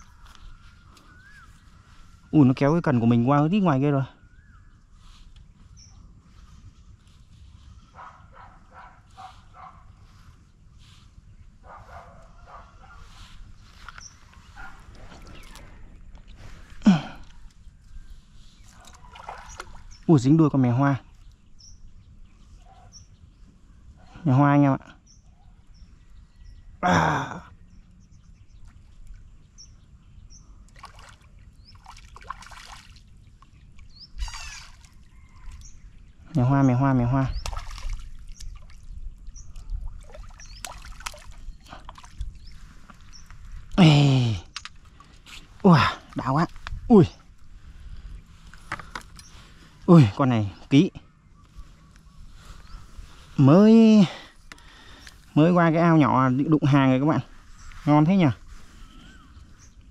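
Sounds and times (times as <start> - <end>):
small birds chirping: 0.0 - 59.9
dog barking: 8.0 - 9.9, 11.6 - 13.0, 14.6 - 14.9
fish thrashing in water: 18.7 - 20.0, 30.8 - 33.2, 37.4 - 38.9, 39.5 - 43.7.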